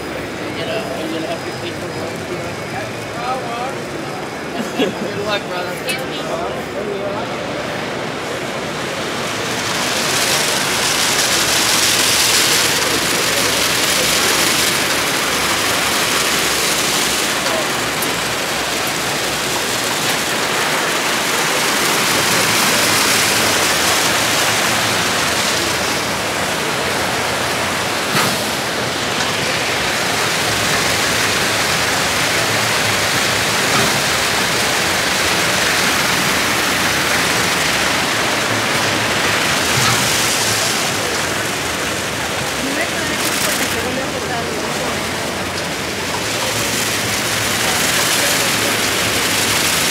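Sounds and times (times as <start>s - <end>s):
car wash brushes swishing: 9.5s - 44.0s.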